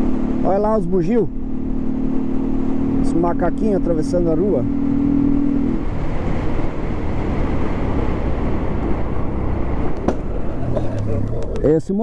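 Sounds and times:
motorcycle engine running: 0.0 - 5.7
wind and road noise: 0.0 - 12.0.

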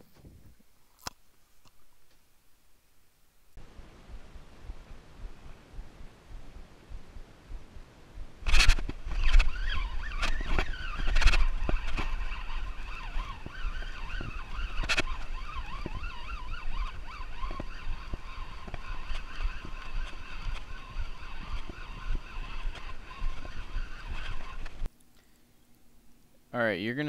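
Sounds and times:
fishing reel gear whine: 8.5 - 24.8.

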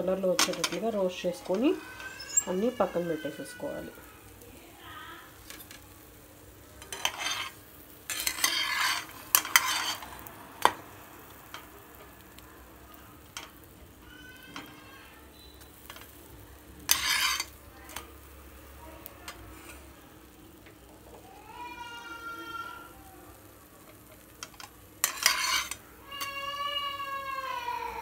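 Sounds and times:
low oil sizzle: 0.0 - 28.0
spatula scraping frying pan: 0.2 - 3.9, 6.8 - 11.7, 13.2 - 16.2, 16.8 - 18.1, 19.3 - 20.0, 23.9 - 26.6.

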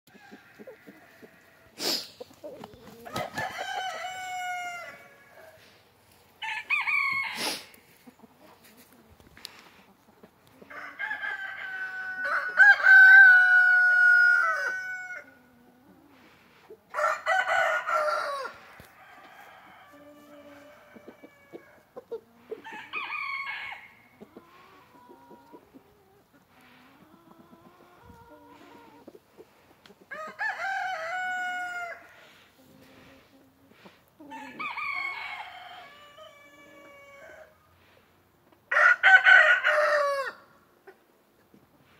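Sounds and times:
rooster crowing: 3.0 - 5.6, 6.4 - 7.5, 10.7 - 15.3, 17.0 - 21.6, 22.7 - 24.0, 30.1 - 32.1, 34.3 - 37.5, 38.7 - 40.4.

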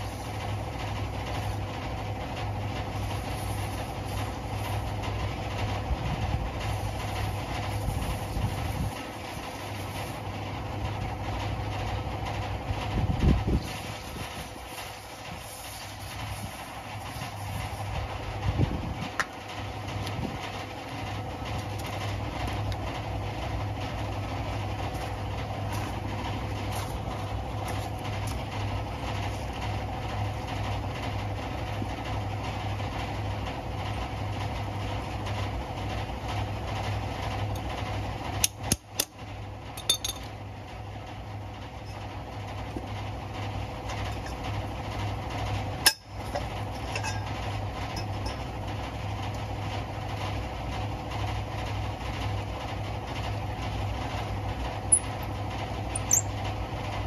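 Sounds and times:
engine idling: 0.0 - 57.0
sharp metallic clinks: 56.0 - 56.3.

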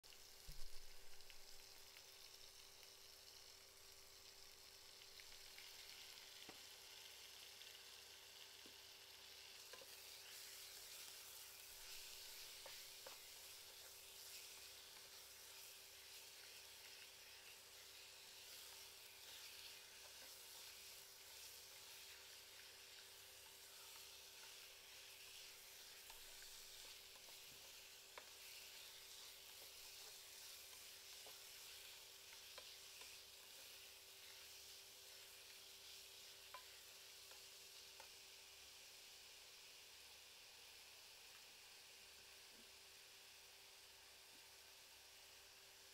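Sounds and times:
meat sizzling in a saucepan: 0.0 - 45.9
spatula tapping and scraping a pan: 9.6 - 38.2.

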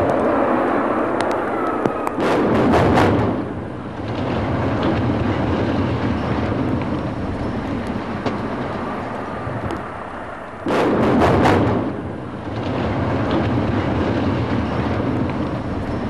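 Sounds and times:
building collapsing rumble: 0.0 - 16.0
faint cracks: 3.3 - 16.0.

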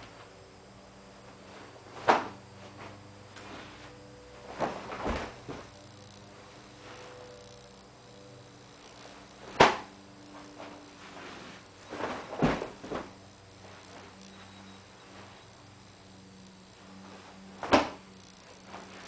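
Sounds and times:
bare foot thuds: 1.3 - 5.8, 9.4 - 9.9, 10.6 - 13.2, 17.6 - 18.0.

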